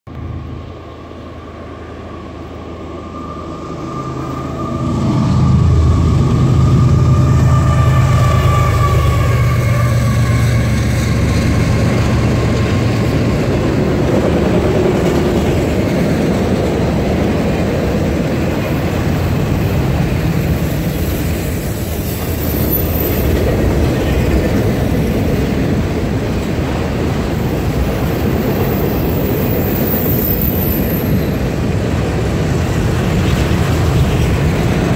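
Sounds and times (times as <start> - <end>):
high whine dropping in pitch: 0.1 - 10.3
locomotive engines droning: 0.1 - 34.9
train wheels on rails: 0.1 - 34.9.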